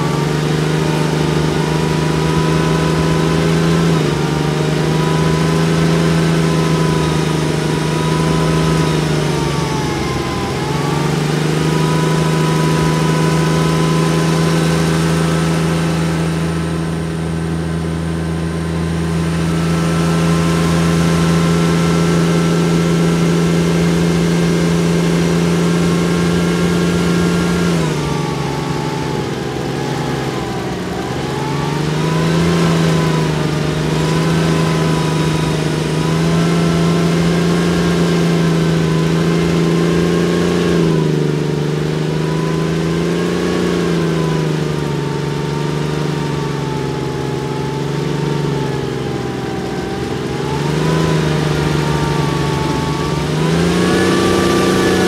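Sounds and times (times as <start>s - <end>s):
tracked vehicle diesel engine: 0.0s - 55.0s.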